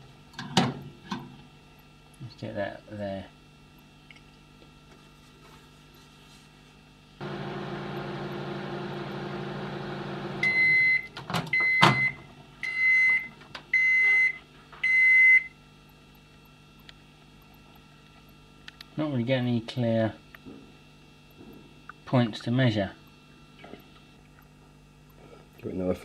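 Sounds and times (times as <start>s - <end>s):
microwave oven humming: 0.0s - 26.0s
microwave beeps: 7.3s - 15.6s.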